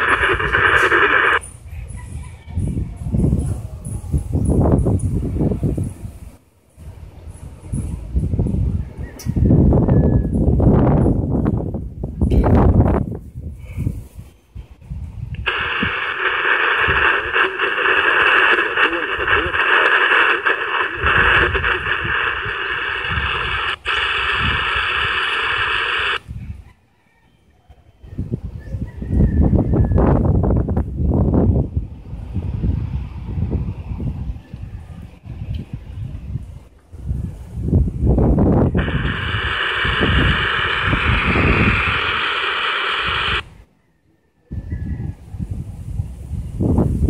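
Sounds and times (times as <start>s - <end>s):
radio static hiss: 0.0s - 1.5s, 15.3s - 26.2s, 38.7s - 43.6s
wind buffeting microphone: 0.0s - 26.8s, 28.0s - 43.6s, 44.5s - 47.0s.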